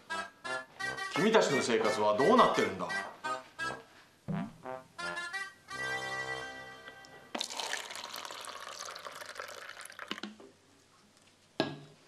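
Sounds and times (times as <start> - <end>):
liquid pouring into a cup: 7.4 - 10.4.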